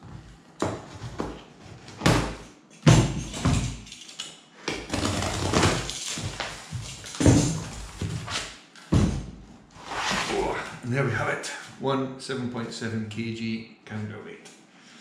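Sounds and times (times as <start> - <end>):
packing tape and cardboard ripping: 4.9 - 8.4.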